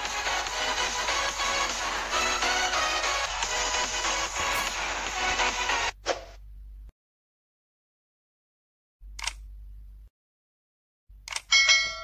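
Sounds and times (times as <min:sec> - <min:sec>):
electronic music: 0:00.0 - 0:06.0.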